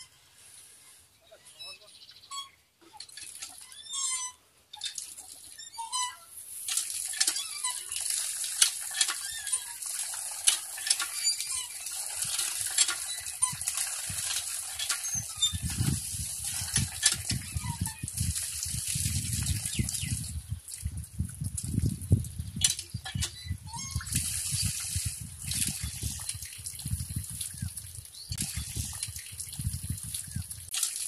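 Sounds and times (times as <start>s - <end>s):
pump handle squeaking and clicking: 1.5s - 31.0s
water splashing from spout: 4.8s - 31.0s.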